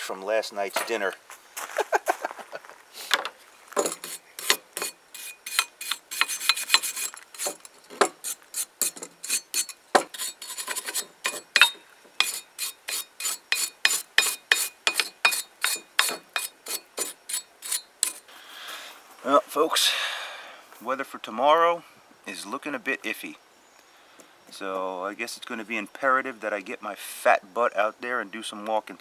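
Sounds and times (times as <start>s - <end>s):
stiff brush scrubbing cast iron: 3.8s - 18.3s.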